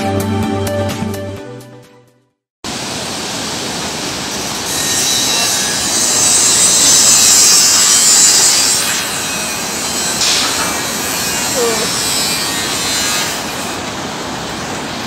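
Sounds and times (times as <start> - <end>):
rushing hiss of outdoor ambience: 2.7 - 15.0.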